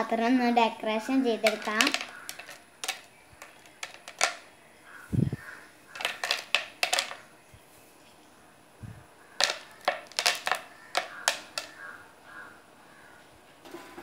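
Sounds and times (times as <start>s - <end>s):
nuts clicking into plastic container: 1.4s - 4.5s, 5.9s - 7.2s, 9.4s - 12.0s.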